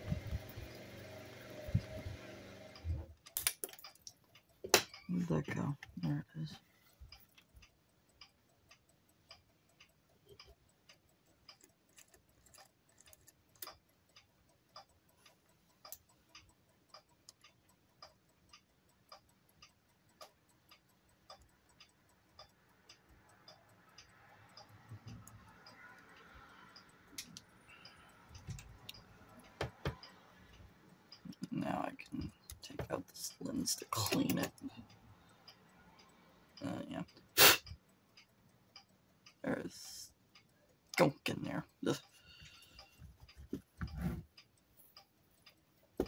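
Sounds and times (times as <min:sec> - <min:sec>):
clock ticking: 0:00.0 - 0:46.0
rubbing and handling noise: 0:42.9 - 0:45.0.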